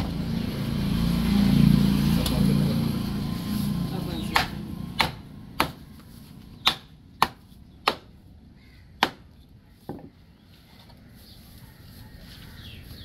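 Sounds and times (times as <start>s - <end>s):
knife chopping fish on wood: 4.3s - 5.9s.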